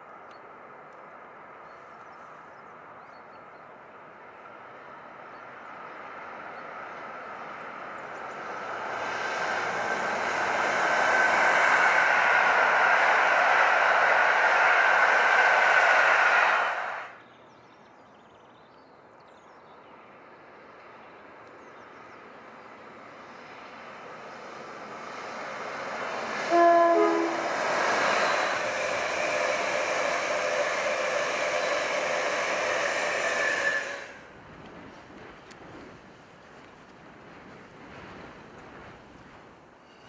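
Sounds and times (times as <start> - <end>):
train passing rumble: 0.0 - 17.5, 19.8 - 40.0
train horn blast: 26.4 - 28.5.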